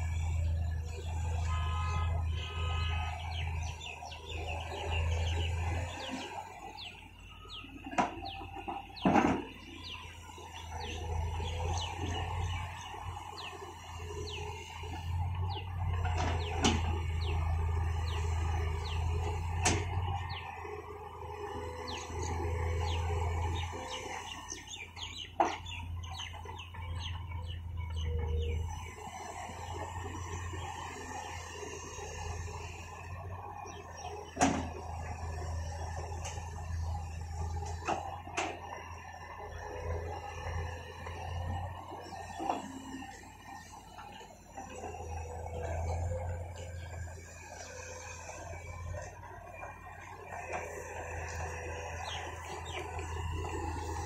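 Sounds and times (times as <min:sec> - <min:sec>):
birds chirping: 0:00.0 - 0:54.0
excavator diesel engine running: 0:00.0 - 0:54.0.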